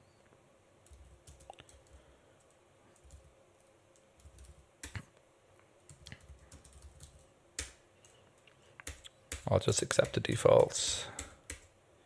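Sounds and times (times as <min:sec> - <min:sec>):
keyboard typing: 0:00.8 - 0:03.3, 0:03.9 - 0:05.1, 0:05.9 - 0:08.2, 0:08.8 - 0:11.7.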